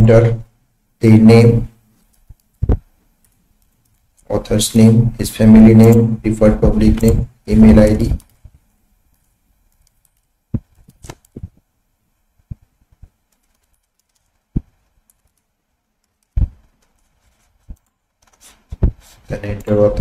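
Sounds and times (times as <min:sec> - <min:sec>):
keyboard typing: 0:09.1 - 0:11.5, 0:12.5 - 0:18.4.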